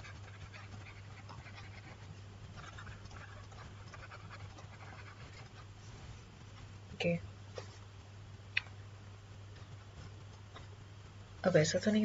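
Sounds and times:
stylus scratching on tablet: 0.0s - 6.6s
low electrical hum: 0.0s - 12.0s.

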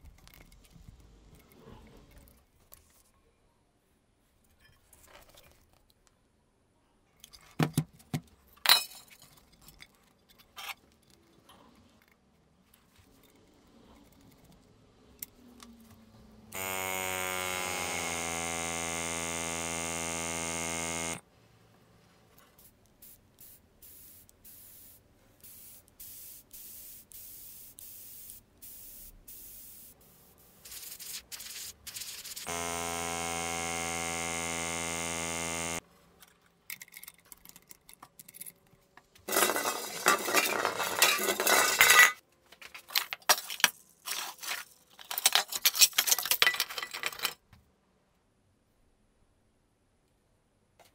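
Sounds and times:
airbrush compressor humming: 16.6s - 21.2s, 30.6s - 35.8s
metal canisters clinking: 39.3s - 47.4s.

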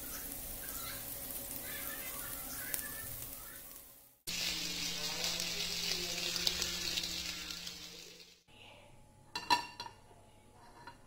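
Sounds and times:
cheese sizzling in oil: 0.0s - 8.5s.

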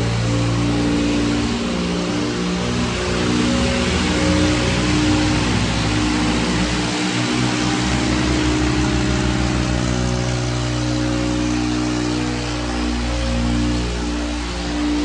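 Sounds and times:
diesel tractor engines droning: 0.0s - 15.0s
noisy hiss: 0.0s - 15.0s.

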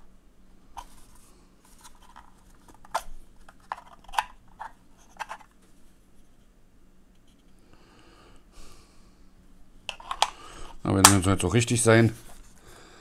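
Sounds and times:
plastic lens cover clicking: 2.1s - 5.5s, 9.9s - 10.4s.

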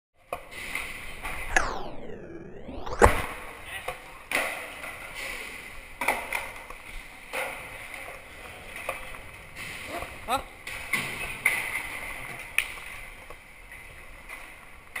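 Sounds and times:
skateboard wheels rolling on concrete: 2.9s - 15.0s
skateboard clacking on ground: 3.8s - 15.0s.

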